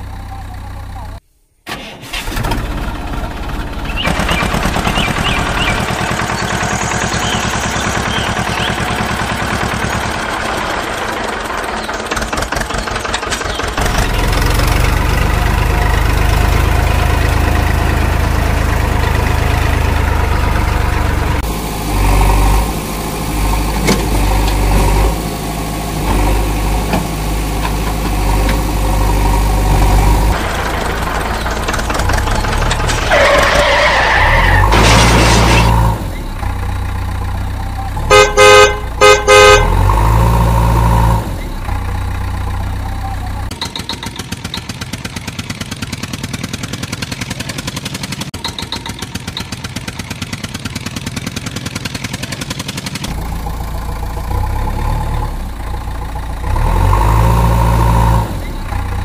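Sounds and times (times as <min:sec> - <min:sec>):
engine running: 0:00.0 - 0:59.0
horn honking: 0:37.6 - 0:40.3
fast ticking rattle: 0:43.5 - 0:53.8.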